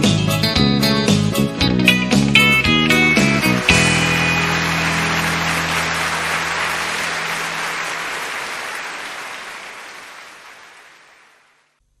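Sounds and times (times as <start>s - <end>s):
low guitar music: 0.0s - 6.4s.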